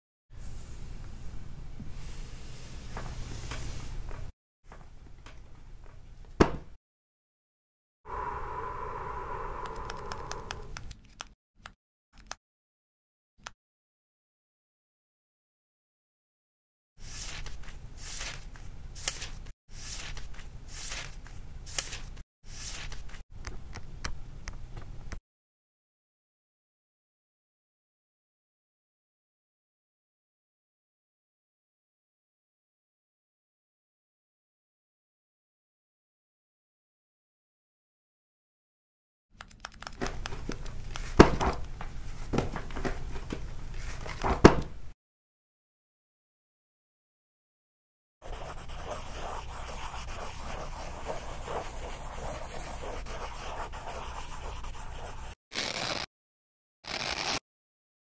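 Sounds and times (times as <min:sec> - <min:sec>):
low hum: 0:08.1 - 0:10.8
paper pages rustling and crinkling: 0:17.1 - 0:23.2
book pages turning and riffling: 0:55.6 - 0:56.1, 0:56.9 - 0:57.4.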